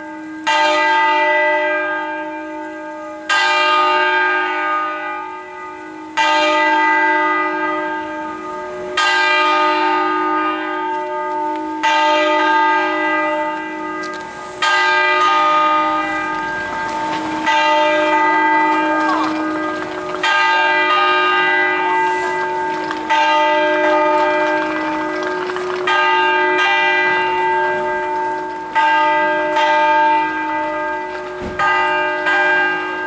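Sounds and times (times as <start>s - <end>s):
church bells ringing: 0.0s - 33.0s
lasting bell hum: 6.8s - 33.0s.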